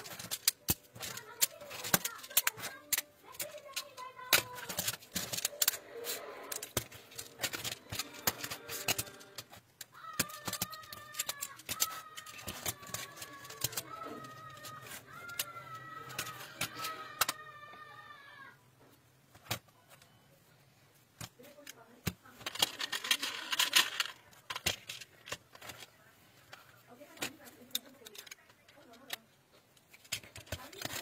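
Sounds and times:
plastic tiles clicking: 0:00.0 - 0:17.4, 0:27.2 - 0:31.0.

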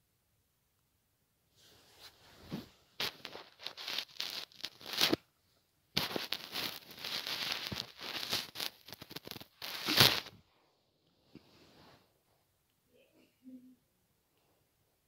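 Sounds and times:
microphone rubbing against skin: 0:01.6 - 0:05.2, 0:06.0 - 0:10.5.

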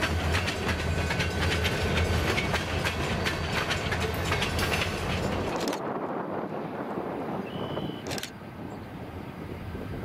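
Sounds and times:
distant diesel locomotive running: 0:00.0 - 0:10.0
wind buffeting microphone: 0:00.6 - 0:10.0
high steady whistle: 0:07.4 - 0:08.1.

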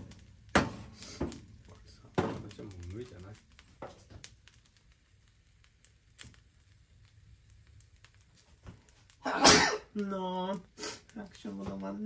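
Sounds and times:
rice crackling in a wok: 0:00.0 - 0:12.0.

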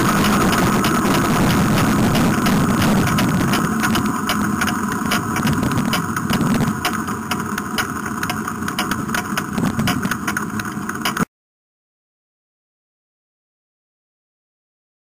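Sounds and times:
dragster engine lumpy idle: 0:00.0 - 0:11.2
exhaust crackling: 0:00.0 - 0:11.3.

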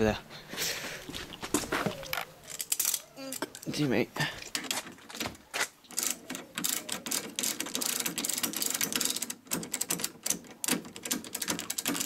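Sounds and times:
ratchet spanner clicking: 0:06.0 - 0:12.0.

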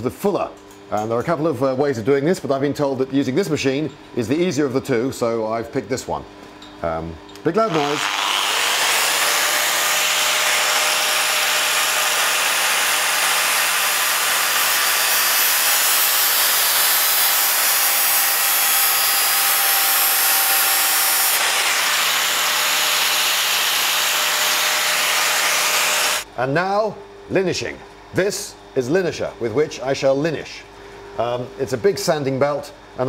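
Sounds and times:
angle grinder grinding steel: 0:07.6 - 0:26.2.

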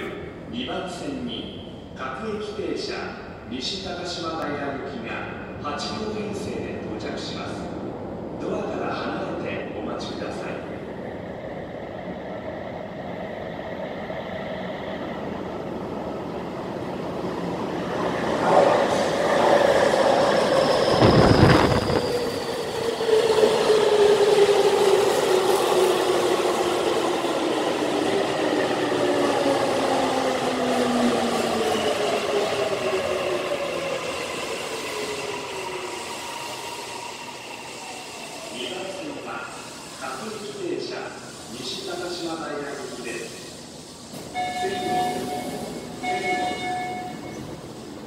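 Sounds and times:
train braking to a stop: 0:17.6 - 0:48.0.

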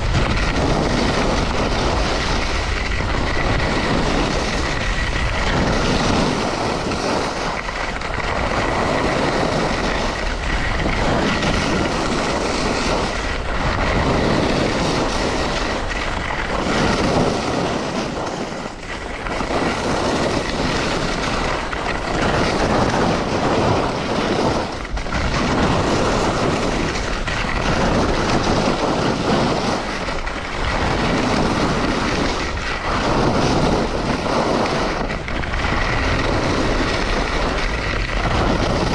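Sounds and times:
skis scraping on snow: 0:00.0 - 0:38.9
wind rush on microphone: 0:00.0 - 0:38.9.

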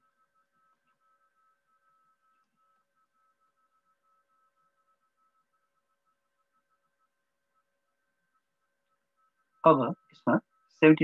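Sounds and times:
faint electronic hum: 0:00.0 - 0:11.0.

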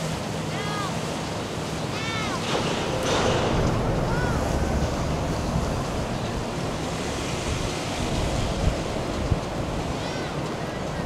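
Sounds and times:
boat engine rumble: 0:00.0 - 0:11.0
water splashing and rushing: 0:00.0 - 0:11.0
wind on microphone: 0:02.5 - 0:11.0.

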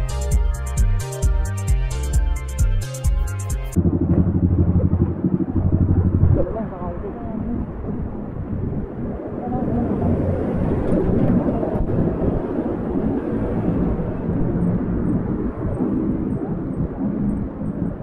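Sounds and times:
motorcycle engine running: 0:03.7 - 0:06.6.

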